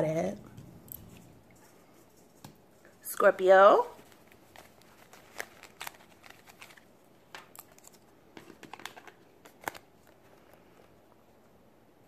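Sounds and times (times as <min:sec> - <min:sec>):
cards being handled: 0:04.0 - 0:11.0.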